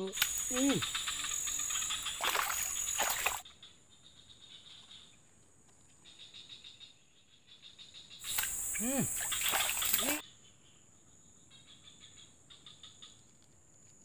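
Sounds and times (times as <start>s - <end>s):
insects buzzing high-pitched: 0.0s - 3.4s, 7.6s - 10.3s
faint insect chirring: 0.0s - 14.0s.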